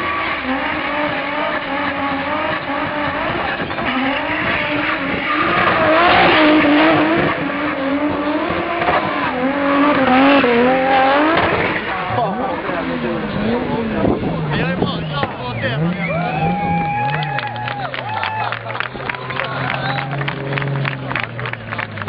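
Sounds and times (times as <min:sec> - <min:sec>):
tyres squealing on tarmac: 0:00.0 - 0:13.0
car engine revving high: 0:00.0 - 0:22.0.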